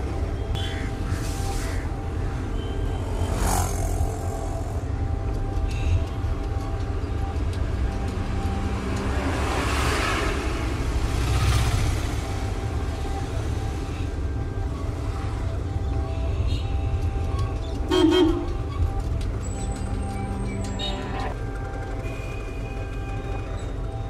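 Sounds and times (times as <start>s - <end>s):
passing tyre noise: 0.0s - 6.1s, 7.2s - 15.5s
road and engine rumble: 0.0s - 24.0s.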